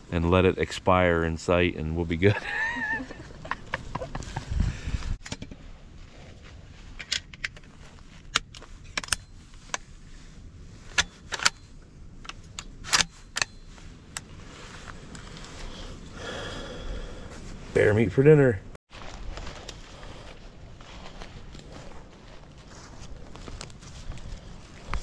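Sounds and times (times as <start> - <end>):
metallic clicks of rifle loading: 11.0 - 11.6, 12.2 - 14.3.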